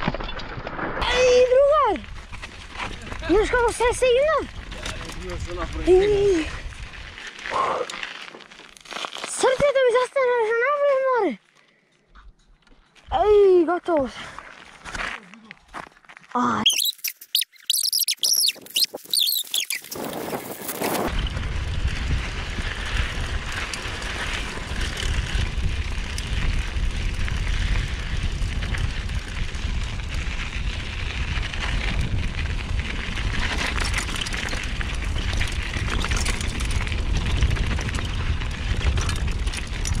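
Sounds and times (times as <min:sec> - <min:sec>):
bike tyres rattling over dirt: 0:00.0 - 0:11.0, 0:12.8 - 0:40.0
quick high chirps: 0:16.6 - 0:20.0
wind on microphone: 0:19.6 - 0:40.0.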